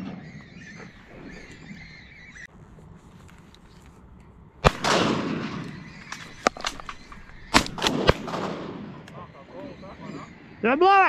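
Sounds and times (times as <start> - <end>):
shotgun shots: 4.6 - 9.0.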